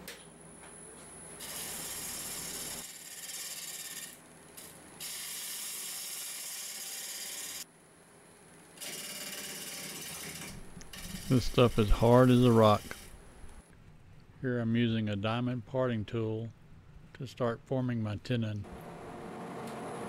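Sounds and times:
lathe gouge cutting spinning log: 9.1s - 13.1s.

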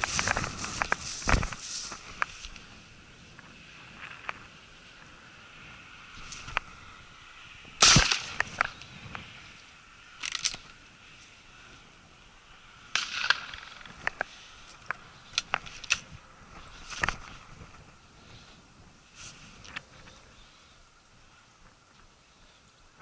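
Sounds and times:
shotgun shot: 7.8s - 8.5s.

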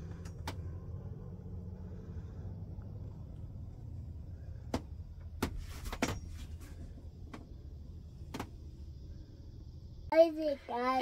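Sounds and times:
low rumble: 0.0s - 5.5s
sharp knocks and clicks: 8.2s - 8.6s.

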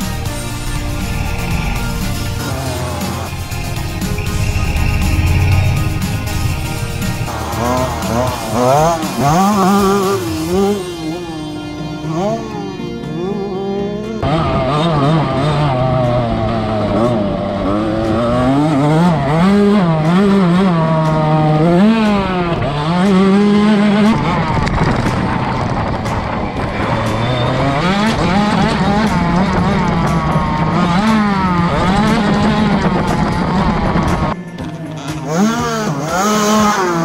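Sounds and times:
dirt bike engine revving: 0.0s - 37.0s.

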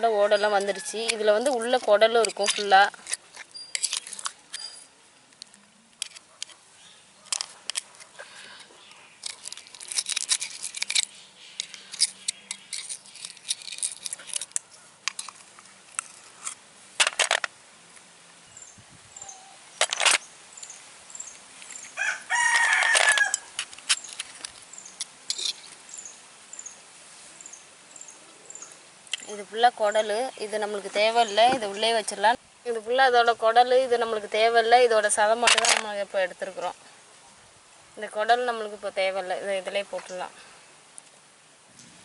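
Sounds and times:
knife opening snail shells: 1.0s - 4.8s, 5.4s - 6.6s, 7.3s - 17.5s, 22.5s - 25.8s
faint high chirp: 3.5s - 4.9s, 18.5s - 19.8s
rooster crowing: 22.0s - 23.5s.

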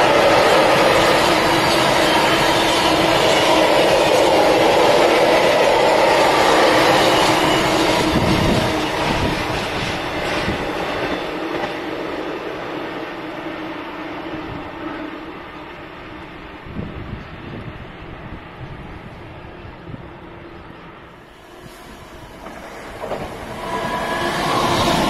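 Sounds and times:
train wheels clattering on track: 0.0s - 12.5s, 21.6s - 25.0s.

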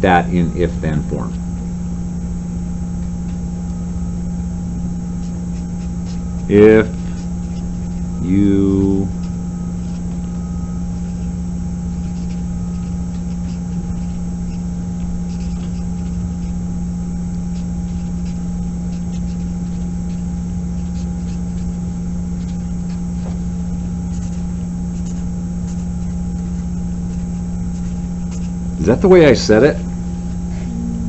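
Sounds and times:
low electrical hum: 0.0s - 31.0s
marker scratching on paper: 0.4s - 30.7s
faint high tone: 30.6s - 31.0s.

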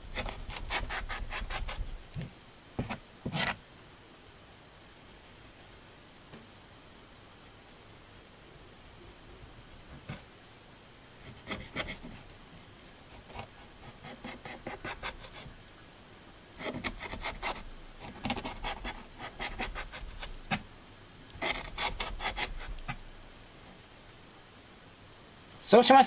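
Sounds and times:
knife scraping fish fillet: 0.1s - 1.9s, 11.3s - 12.2s, 13.2s - 15.5s, 16.6s - 20.6s, 21.4s - 22.9s.

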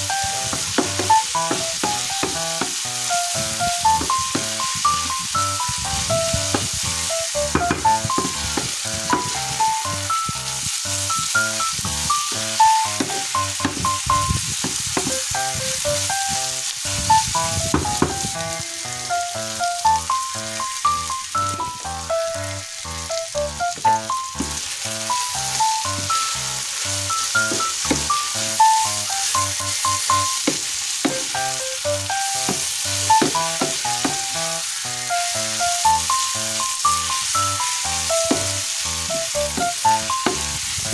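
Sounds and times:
light background music: 0.0s - 40.9s
meat sizzling in a frying pan: 0.0s - 40.9s.

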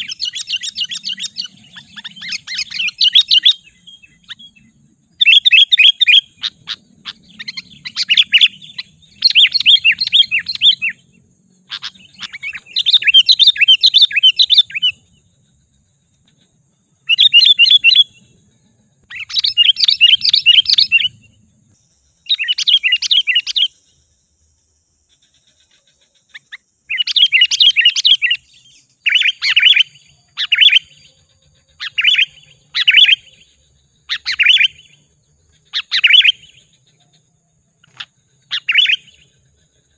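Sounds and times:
bird chattering song: 0.0s - 39.9s.

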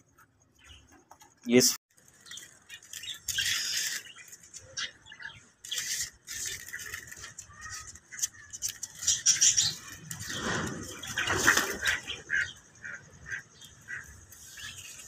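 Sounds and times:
birds wing-flapping in wire cage: 10.2s - 12.2s.

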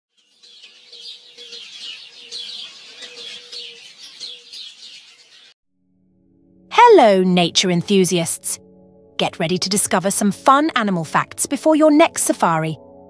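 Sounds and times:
small birds chirping: 0.1s - 5.6s.

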